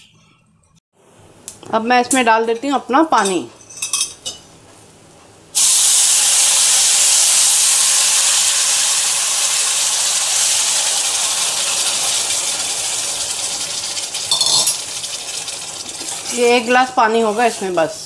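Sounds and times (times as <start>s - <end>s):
water hissing in hot pan: 5.6s - 18.0s.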